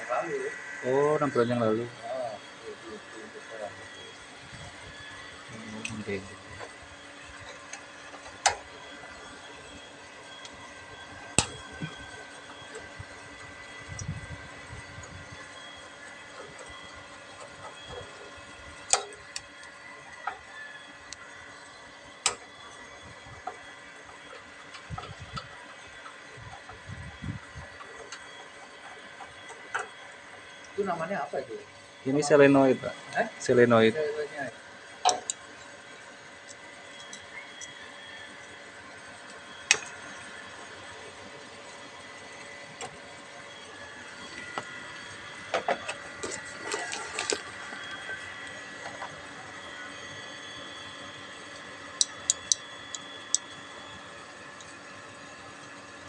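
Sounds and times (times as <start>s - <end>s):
steady background hum: 0.0s - 56.0s
screwdriver clicks and metallic taps: 52.0s - 52.6s.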